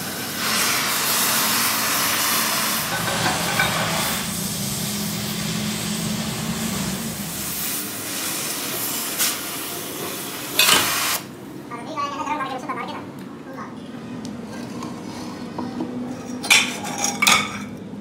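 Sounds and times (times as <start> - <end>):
gas torch hissing: 0.0 - 11.4
low hum: 2.8 - 7.9.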